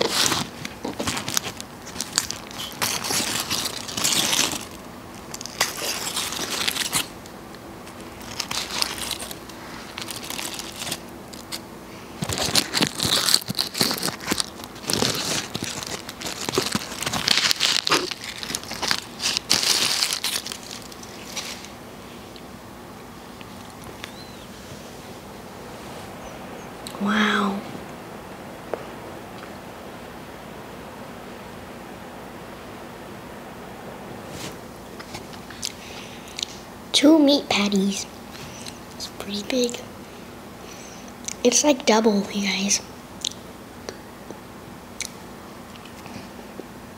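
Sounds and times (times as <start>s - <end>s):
foil wrapper crinkling: 0.0s - 22.5s.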